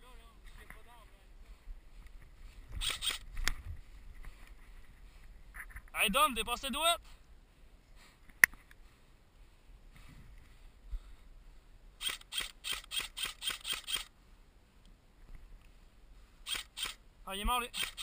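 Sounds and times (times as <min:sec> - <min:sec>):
airsoft rifle shots: 0:02.8 - 0:03.2, 0:12.0 - 0:14.1, 0:16.4 - 0:17.0, 0:17.6 - 0:18.0
sharp click: 0:02.8 - 0:03.6, 0:12.0 - 0:14.1, 0:16.5 - 0:17.0, 0:17.7 - 0:18.0.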